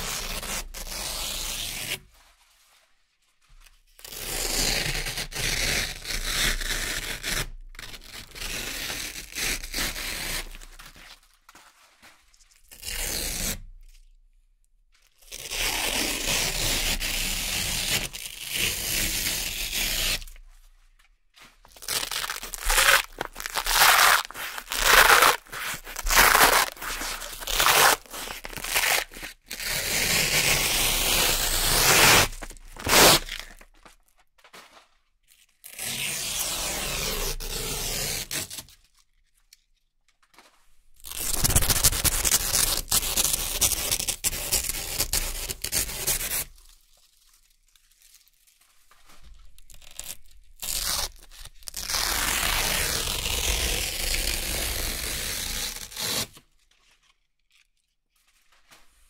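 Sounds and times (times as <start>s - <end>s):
velcro ripping: 0.0s - 2.0s, 4.1s - 11.3s, 15.3s - 20.5s, 21.7s - 34.0s, 35.6s - 38.8s, 41.0s - 46.8s, 49.5s - 56.4s.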